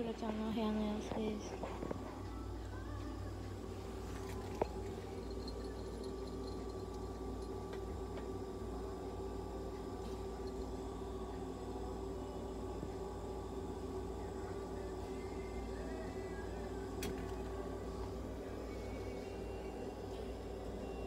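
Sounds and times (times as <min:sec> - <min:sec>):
faint steady tones: 0:00.0 - 0:21.0
low hum: 0:00.0 - 0:21.0.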